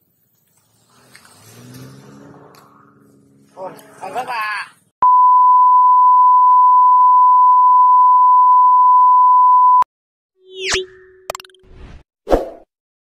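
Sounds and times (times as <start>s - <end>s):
sine reference tone: 5.0s - 9.8s.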